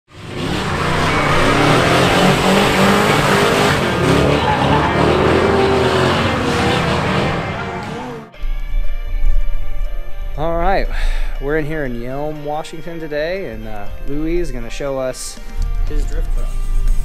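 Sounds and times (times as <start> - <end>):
engine revving: 0.1 - 8.5
tire squeal: 0.2 - 8.3.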